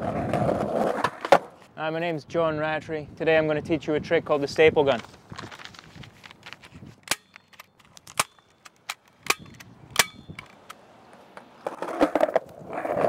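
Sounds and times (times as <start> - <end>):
skateboard wheels rolling: 0.0 - 1.7, 10.5 - 13.0
staple gun firing: 7.1 - 10.8.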